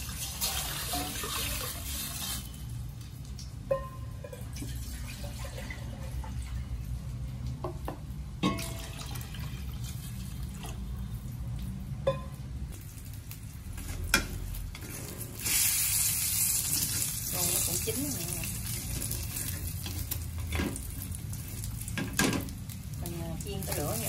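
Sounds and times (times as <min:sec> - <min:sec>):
water pouring into pot: 0:00.0 - 0:07.6, 0:08.4 - 0:13.4.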